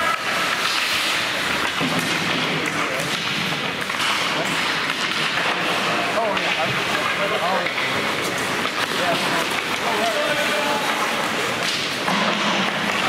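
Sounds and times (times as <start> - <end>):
crowd chattering: 5.4 - 12.1.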